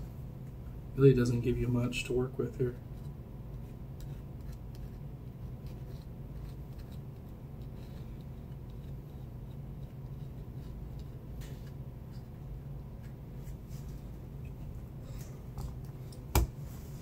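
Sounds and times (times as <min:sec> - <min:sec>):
steady low hum: 0:00.0 - 0:17.0
small ticks and light scratches: 0:02.7 - 0:14.6.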